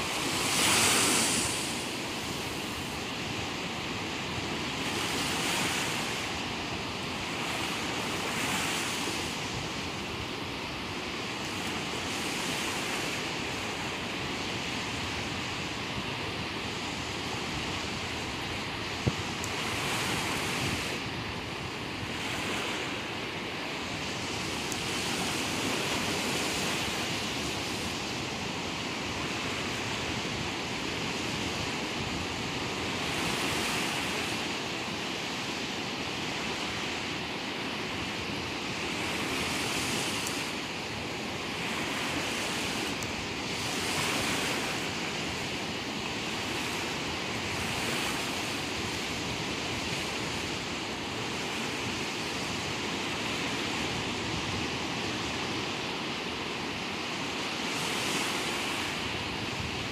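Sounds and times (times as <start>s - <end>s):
sea waves breaking among rocks: 0.0s - 14.3s.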